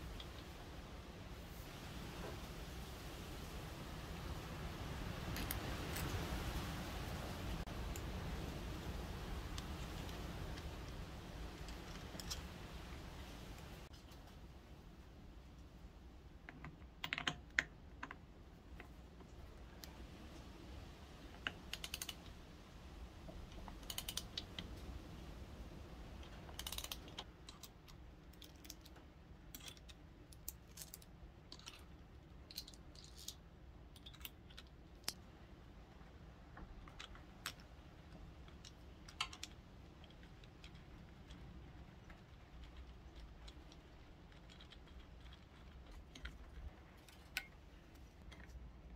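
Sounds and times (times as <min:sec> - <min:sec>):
metal parts clicking and tapping: 0:16.4 - 0:19.9, 0:21.3 - 0:22.3, 0:23.3 - 0:24.8, 0:26.2 - 0:35.2, 0:36.6 - 0:48.6.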